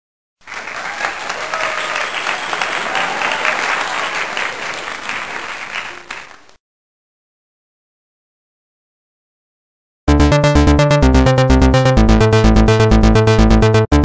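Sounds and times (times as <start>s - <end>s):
crowd applauding: 0.4s - 6.6s.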